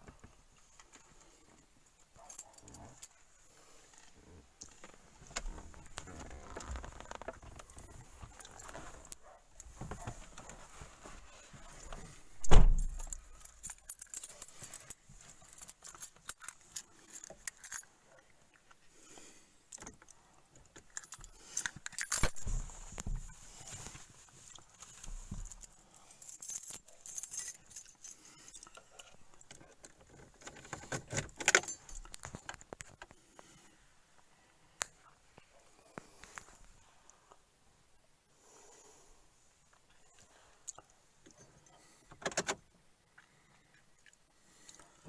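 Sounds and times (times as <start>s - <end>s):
loud thump: 12.4s - 12.9s
car keys jangling: 12.4s - 17.9s, 20.7s - 22.7s, 24.5s - 32.6s
handling clicks and knocks: 19.7s - 33.2s, 41.2s - 42.7s.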